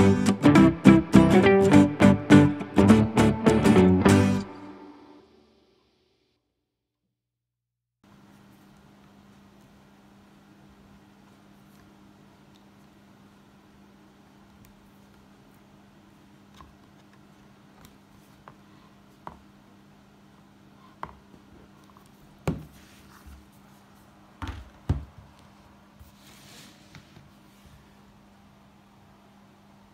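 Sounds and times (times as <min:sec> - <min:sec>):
books thumping on wooden table: 0:22.4 - 0:22.8, 0:24.4 - 0:25.2
book sliding across table: 0:22.6 - 0:23.5, 0:26.0 - 0:27.8.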